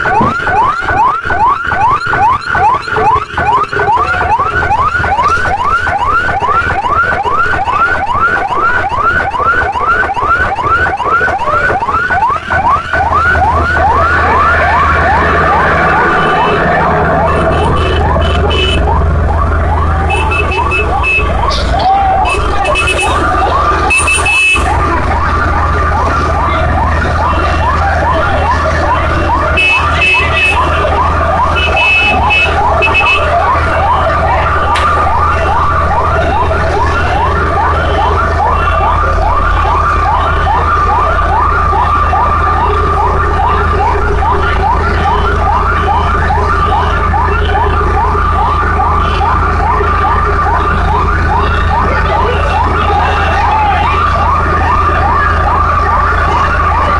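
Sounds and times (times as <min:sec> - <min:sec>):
emergency siren yelping: 0:00.0 - 0:56.9
low rumble: 0:13.0 - 0:20.1.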